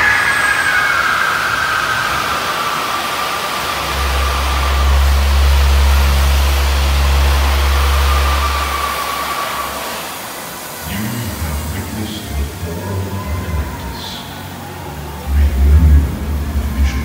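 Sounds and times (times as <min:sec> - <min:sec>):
steady rushing noise: 0:00.0 - 0:17.0
vehicle low hum: 0:00.0 - 0:17.0.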